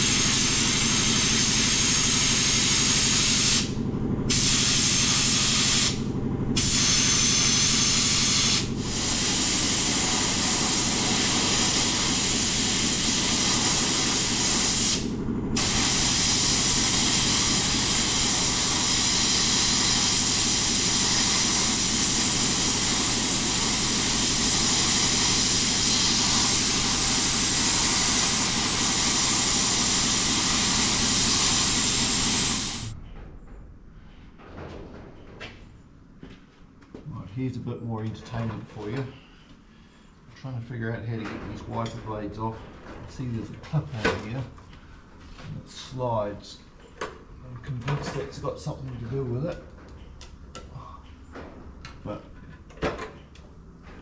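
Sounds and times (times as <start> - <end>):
sandblasting gun blasting: 0.0 - 33.0.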